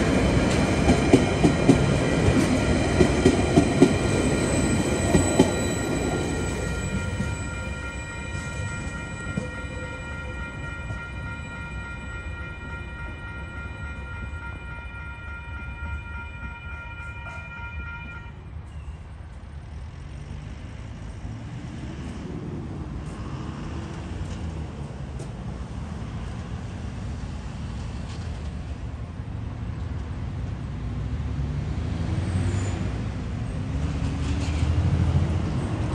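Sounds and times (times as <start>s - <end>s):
car and truck engines accelerating: 30.8s - 35.9s.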